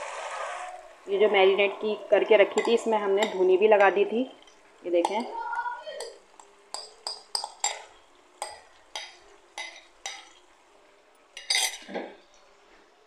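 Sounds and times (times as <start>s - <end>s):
spoon clinking against pan: 2.5s - 5.4s, 6.0s - 10.5s, 11.4s - 12.3s.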